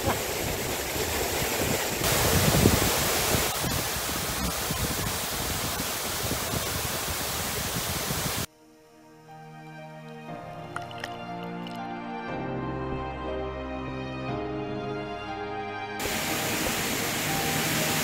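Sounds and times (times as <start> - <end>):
waterfall over rocks: 0.0 - 8.5, 16.0 - 18.0
soft music: 8.5 - 18.0.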